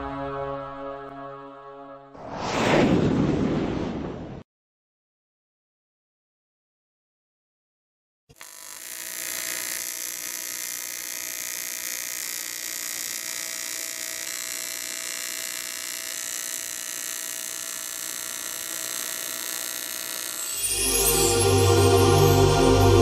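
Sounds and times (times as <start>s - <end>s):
welding arc buzzing over hiss: 8.3s - 23.0s.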